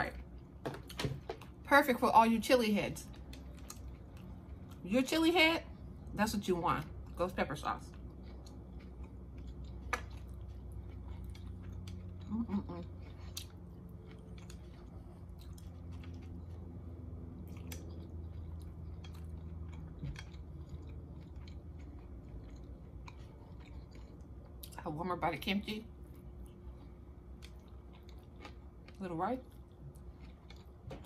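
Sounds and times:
low steady hum: 0.0 - 31.0
person chewing food: 3.0 - 4.8, 7.9 - 24.8, 25.9 - 31.0.

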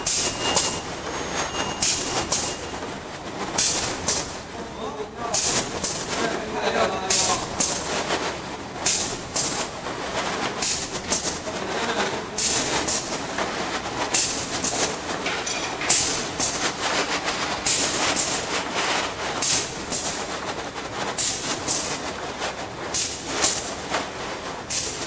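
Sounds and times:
mechanical clatter: 7.0 - 25.0.

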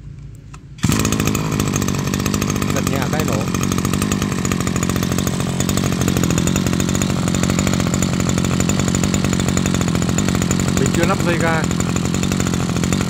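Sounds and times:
brush cutter engine idling: 0.8 - 13.0.

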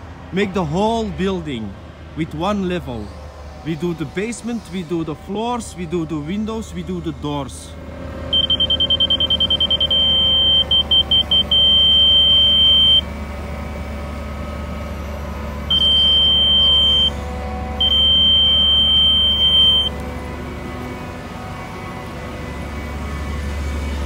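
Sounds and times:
steady high electronic tone: 8.3 - 13.1
rapid electronic beeping: 8.4 - 13.0.

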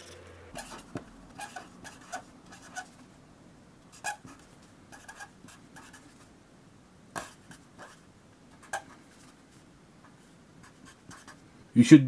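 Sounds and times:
pen scratching on paper: 0.6 - 3.0, 3.9 - 6.2, 7.2 - 8.0, 10.6 - 11.4.

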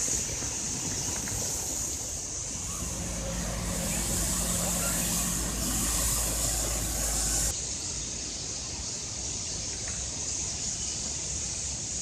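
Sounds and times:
hiss of brushes and water: 0.1 - 7.6
street sweeper engine rumble: 2.2 - 7.6.

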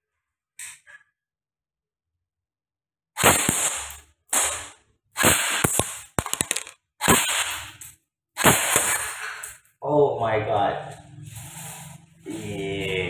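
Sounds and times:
airsoft rifle firing bursts: 3.2 - 7.8.

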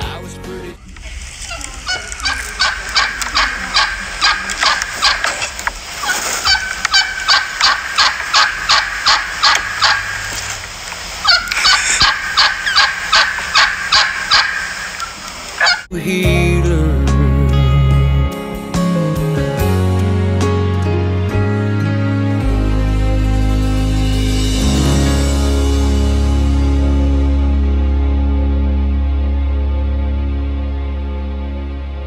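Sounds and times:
turkeys yelping: 0.8 - 15.9.

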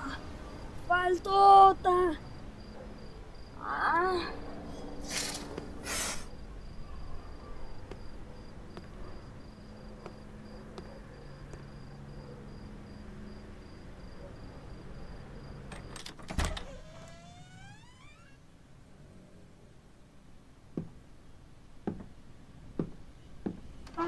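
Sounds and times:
cricket chirping: 0.0 - 18.4
short rushes of noise: 5.0 - 6.3
rising creak: 15.7 - 18.5.

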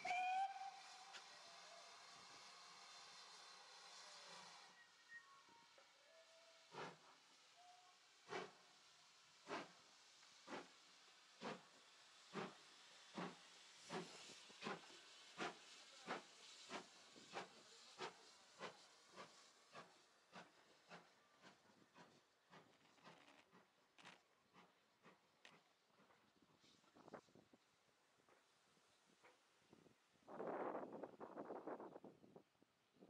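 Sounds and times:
steam locomotive exhaust chuffs: 0.0 - 5.1, 6.1 - 27.2
steady hiss of steam: 0.0 - 32.3.

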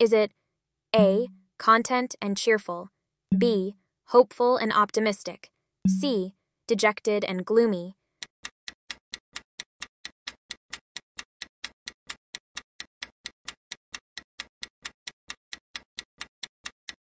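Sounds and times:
clock ticking: 1.0 - 1.4, 3.3 - 3.6, 5.9 - 6.2.

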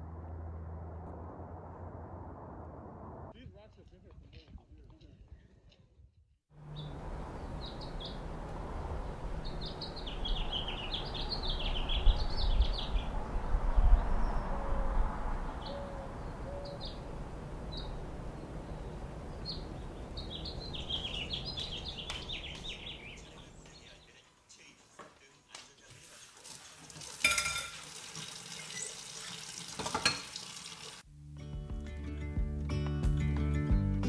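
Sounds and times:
low rumbles: 0.0 - 3.4, 6.6 - 23.8
outdoor ambience: 0.0 - 30.3
small birds chirping: 6.6 - 14.6, 15.4 - 25.8.

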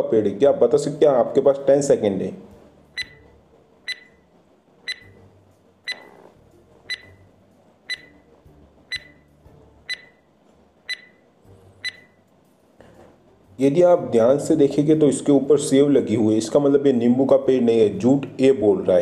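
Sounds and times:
high-pitched beeping tick: 3.0 - 3.3, 3.9 - 4.2, 4.9 - 5.2, 5.9 - 6.2, 6.9 - 7.2, 7.9 - 8.2, 8.9 - 9.3, 9.9 - 10.2, 10.9 - 11.2, 11.8 - 12.2.

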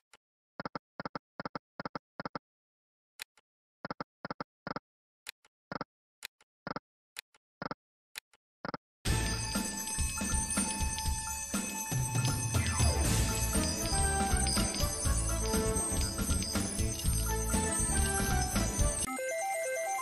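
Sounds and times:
slot machine clicks and blips: 9.1 - 20.0
win jingle: 9.1 - 20.0.

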